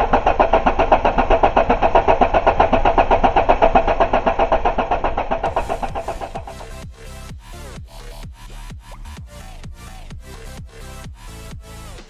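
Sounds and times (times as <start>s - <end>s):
engine cranking on starter motor: 0.0s - 7.2s
electronic music: 5.0s - 12.0s.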